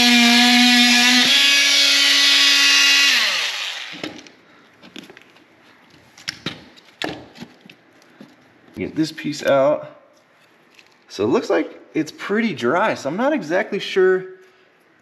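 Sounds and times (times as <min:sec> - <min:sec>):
oscillating multi-tool buzzing: 0:00.0 - 0:04.0.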